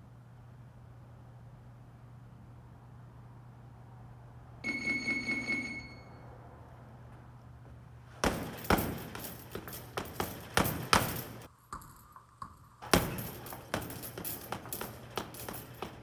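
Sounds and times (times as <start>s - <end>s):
gloves punching heavy bag: 8.1s - 11.5s, 12.8s - 16.0s.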